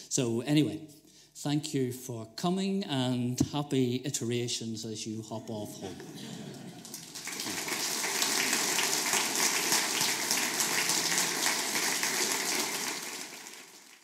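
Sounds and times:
audience applauding: 0:06.4 - 0:14.0.

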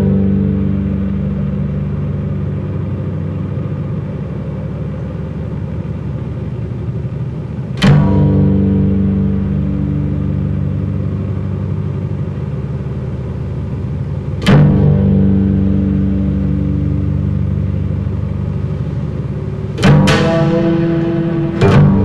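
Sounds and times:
bass guitar low notes: 0:00.0 - 0:22.0.

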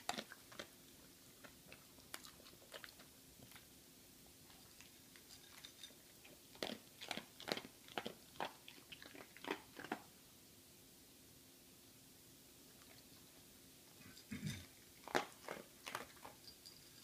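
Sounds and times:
dog crunching dry kibble: 0:00.0 - 0:03.7, 0:04.5 - 0:10.1, 0:14.1 - 0:17.0.

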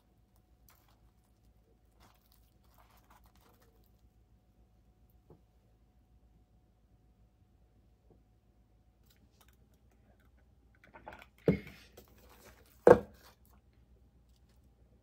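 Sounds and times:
plate bumping on tabletop: 0:12.9 - 0:13.2.

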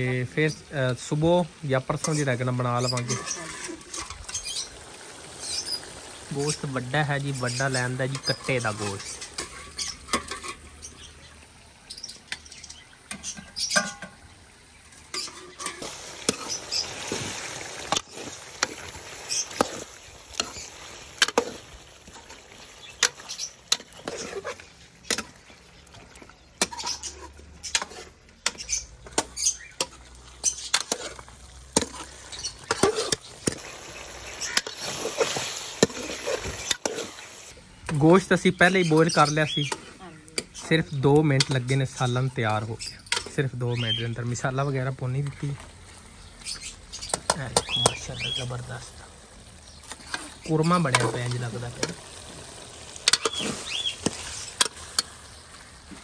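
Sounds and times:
curry sizzling: 0:00.0 - 0:56.0
metal spatula scraping wok: 0:01.9 - 0:04.8, 0:05.4 - 0:11.1, 0:15.0 - 0:25.4, 0:26.6 - 0:33.6, 0:34.2 - 0:37.6, 0:49.8 - 0:56.0.

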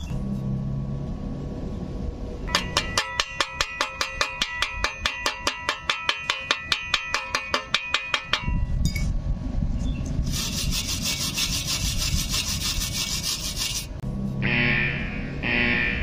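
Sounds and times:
wire brush scrubbing metal: 0:02.5 - 0:08.5, 0:10.2 - 0:14.0
loud buzzer tone: 0:14.4 - 0:16.0.

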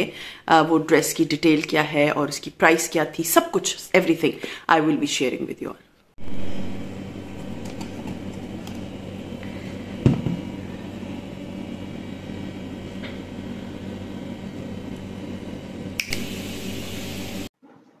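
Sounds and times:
steady machine hum: 0:06.2 - 0:17.5.

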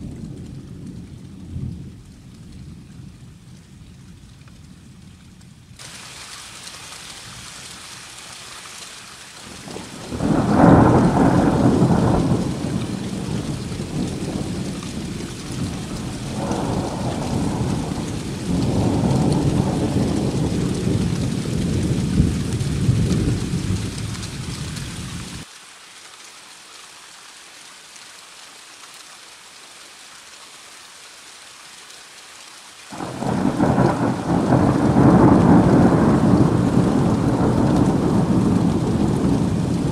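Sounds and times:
rain hiss: 0:00.0 - 0:39.9
rolling thunder: 0:09.6 - 0:25.4, 0:32.9 - 0:39.9.

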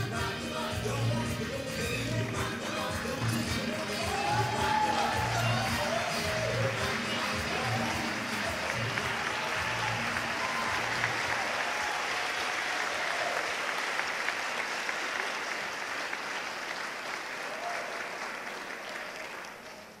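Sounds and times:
music: 0:00.0 - 0:11.6
audience applauding: 0:00.0 - 0:20.0.

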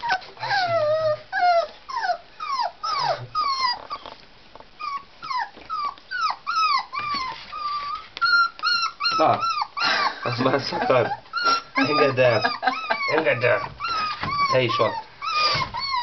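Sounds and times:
puppy growling low: 0:00.0 - 0:04.2, 0:04.8 - 0:16.0
puppies whining and yelping: 0:00.0 - 0:16.0.

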